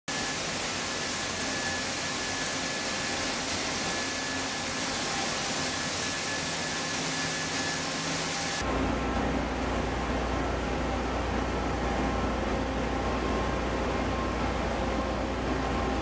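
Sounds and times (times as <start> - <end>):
faint machinery tones: 0.1 - 16.0.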